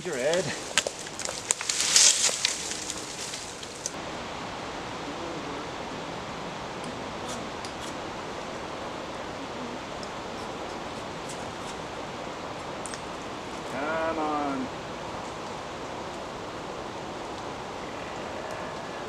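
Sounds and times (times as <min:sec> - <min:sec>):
branches scraping through dry leaves: 0:00.0 - 0:04.0
steady hiss: 0:00.0 - 0:19.0.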